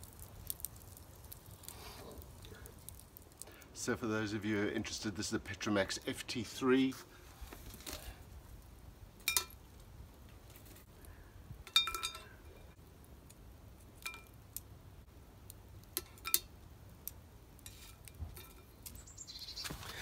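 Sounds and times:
metal tongs clinking on iron lid: 9.2 - 9.6, 11.6 - 12.4.

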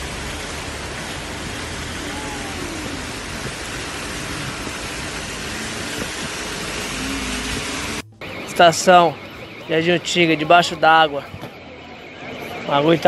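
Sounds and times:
torrential rain: 0.0 - 9.4
floodwater rushing: 0.0 - 11.3.

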